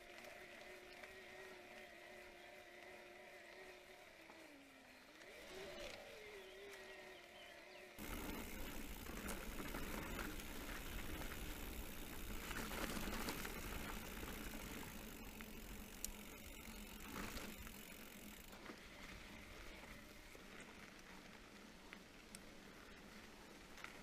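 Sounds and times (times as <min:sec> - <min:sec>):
bike tyres on gravel: 0:00.0 - 0:24.0
bike parts rattling and clicking: 0:08.0 - 0:18.6.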